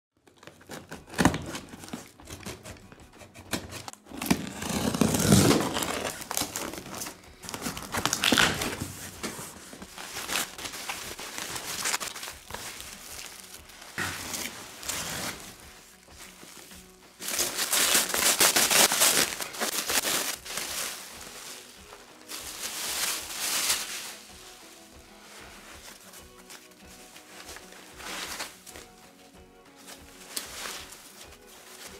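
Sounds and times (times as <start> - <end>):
cardboard box opening: 0.3 - 12.8
rustling of plastic film: 3.6 - 31.9.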